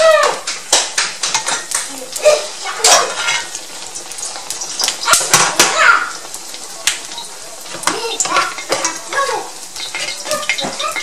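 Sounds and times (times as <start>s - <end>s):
fish cakes sizzling in oil: 0.0s - 11.0s
metal tongs clacking on pan: 0.5s - 2.0s, 2.8s - 5.8s, 6.8s - 11.0s.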